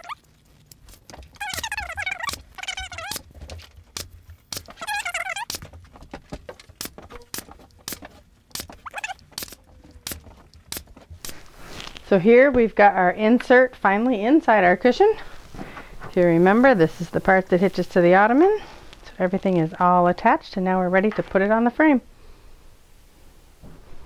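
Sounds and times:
high-pitched warbling chirps: 0:01.4 - 0:03.2, 0:04.8 - 0:05.6, 0:08.7 - 0:09.6.

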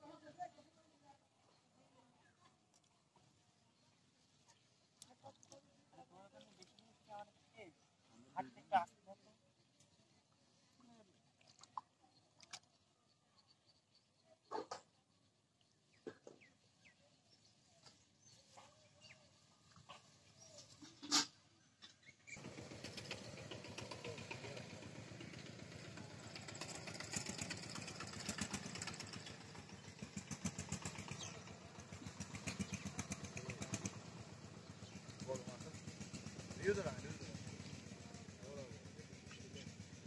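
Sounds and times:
small engine running: 0:22.3 - 0:40.0.

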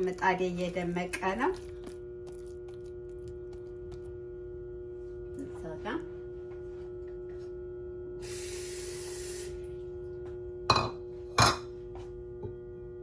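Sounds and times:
kitchen hiss: 0:08.2 - 0:09.6.

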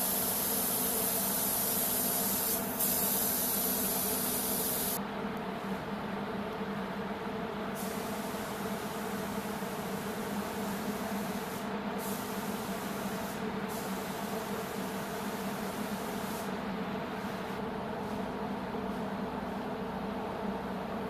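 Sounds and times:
high air hiss: 0:00.0 - 0:05.0, 0:07.8 - 0:16.6
ventilation drone with low hum: 0:00.0 - 0:21.0.

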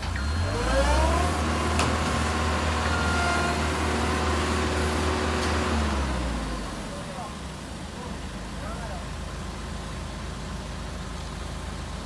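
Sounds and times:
truck diesel engine revving: 0:00.0 - 0:07.3.

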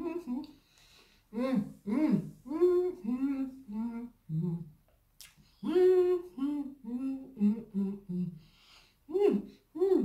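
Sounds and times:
woman humming with mouth full: 0:01.3 - 0:04.8, 0:05.6 - 0:08.4, 0:09.1 - 0:10.0.

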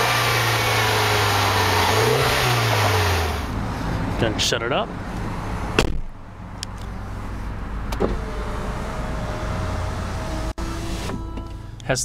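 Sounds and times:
electric window motor whining: 0:08.0 - 0:11.6.

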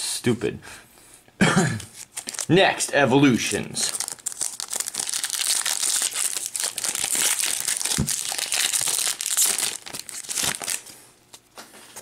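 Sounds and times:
foil wrapper crinkling and tearing: 0:01.9 - 0:02.6, 0:03.7 - 0:11.5.

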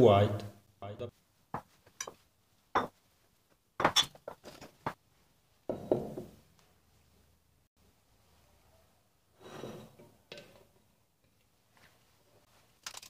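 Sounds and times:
glass bowls knocking on wood: 0:02.8 - 0:03.0.

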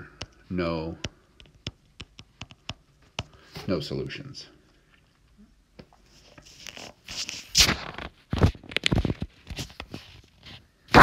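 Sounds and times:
rustling and scraping handling noise: 0:04.8 - 0:10.8
crackly strokes: 0:06.0 - 0:10.7.

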